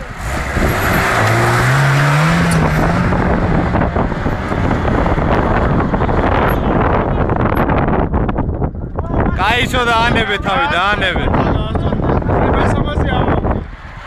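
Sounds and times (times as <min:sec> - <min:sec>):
car engine revving hard: 0:00.0 - 0:07.5.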